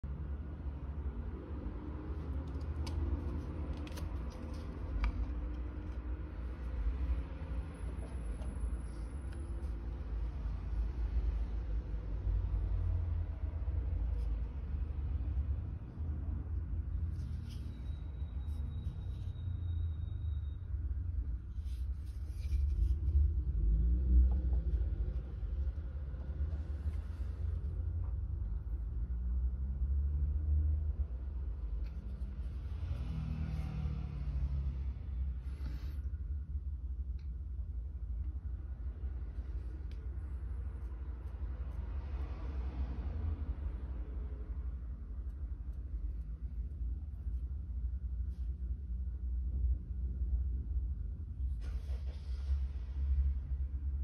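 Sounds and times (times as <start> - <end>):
knife sheath rustling and scraping: 2.1 - 7.1, 21.4 - 23.3.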